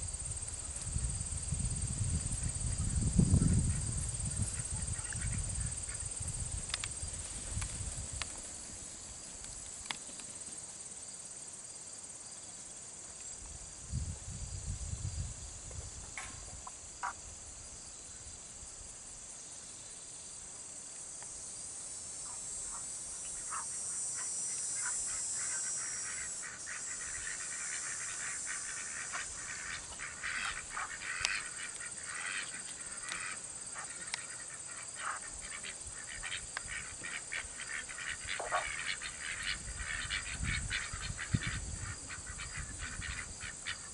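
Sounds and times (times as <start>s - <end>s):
insect chorus: 0.0s - 43.9s
ducks calling: 22.2s - 43.9s.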